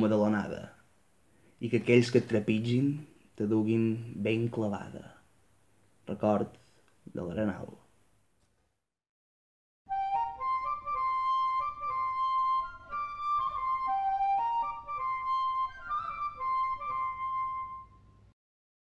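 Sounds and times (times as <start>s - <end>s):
instrumental tune: 9.9s - 18.3s.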